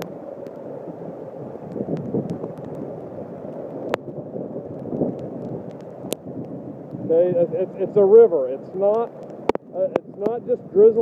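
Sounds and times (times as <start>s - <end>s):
water rushing and splashing: 0.0s - 11.0s.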